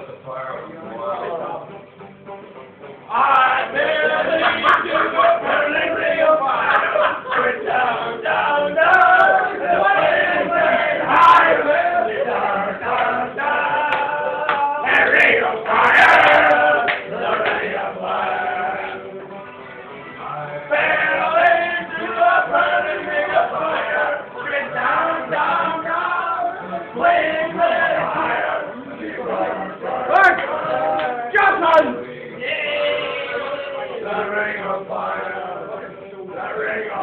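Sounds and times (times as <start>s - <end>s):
group singing along loudly: 3.1s - 37.0s.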